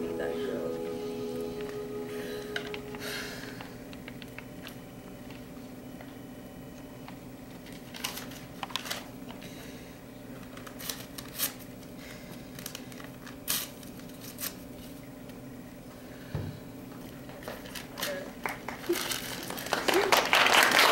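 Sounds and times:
low hum: 0.0 - 6.1
paper rustling: 7.7 - 9.1, 10.4 - 11.6.

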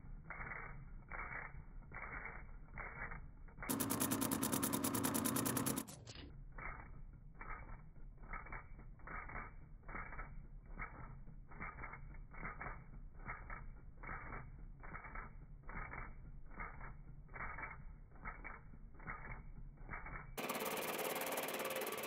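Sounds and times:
milling machine cutting steel: 3.7 - 6.0, 20.4 - 22.0.

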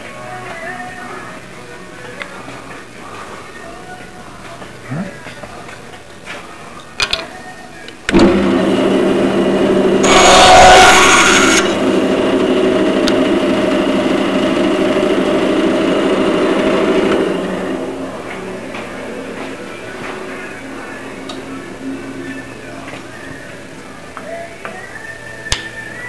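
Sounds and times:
shop vacuum motor whine: 8.1 - 18.8.

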